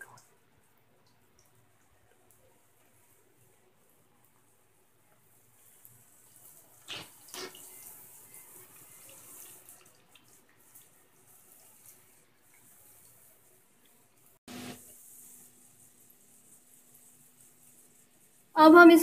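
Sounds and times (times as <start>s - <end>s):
oil sizzling: 5.2s - 18.4s.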